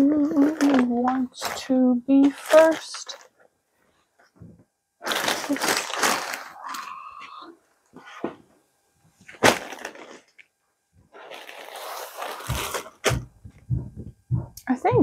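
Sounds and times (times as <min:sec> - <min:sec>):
fabric and plastic bags rustling: 0:00.0 - 0:03.4, 0:05.0 - 0:06.9, 0:09.2 - 0:10.4, 0:11.1 - 0:13.3.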